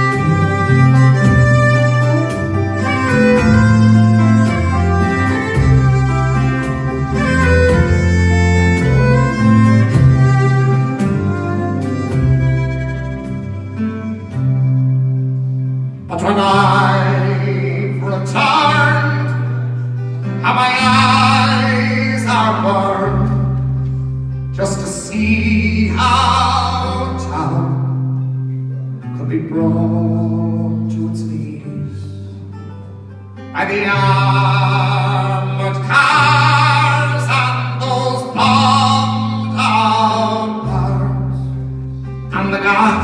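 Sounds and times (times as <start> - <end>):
acoustic guitar: 0.0 - 43.0
bass guitar low notes: 0.0 - 43.0
man singing slow ballad: 15.9 - 32.8, 33.4 - 43.0.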